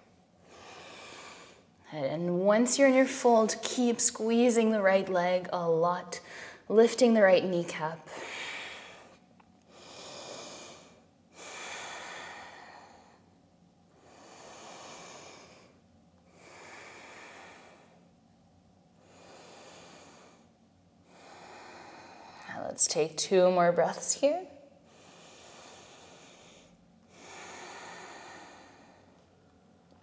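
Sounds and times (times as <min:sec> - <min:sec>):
woman breathing deeply: 0:00.0 - 0:01.8, 0:06.2 - 0:06.7, 0:08.1 - 0:18.2, 0:18.9 - 0:22.6, 0:24.8 - 0:29.6.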